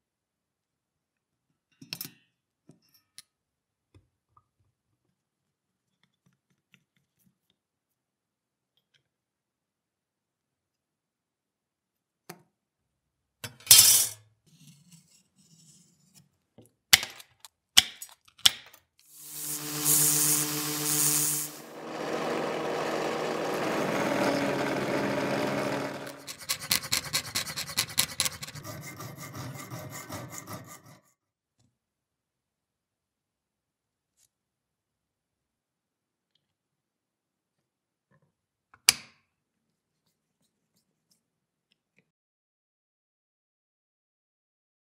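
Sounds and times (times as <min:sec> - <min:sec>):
drill cutting through copper: 0:19.1 - 0:27.0
drill press motor humming: 0:19.2 - 0:26.5
hand tool strokes on metal: 0:19.2 - 0:31.0.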